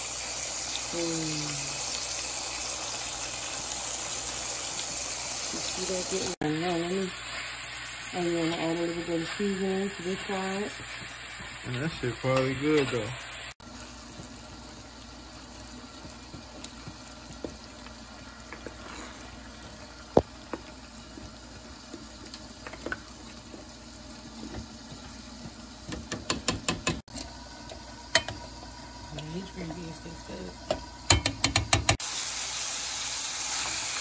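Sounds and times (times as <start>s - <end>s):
spoon knocking on pot: 25.9s - 27.0s, 30.7s - 32.0s.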